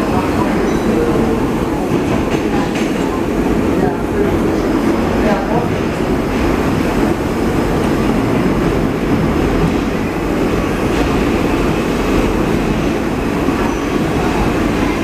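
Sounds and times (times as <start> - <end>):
subway train wheels on rail: 0.0 - 15.0.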